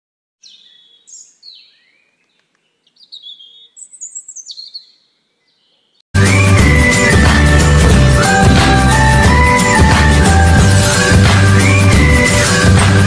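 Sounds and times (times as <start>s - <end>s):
birds chirping: 0.4s - 11.0s
loud music: 6.2s - 13.0s.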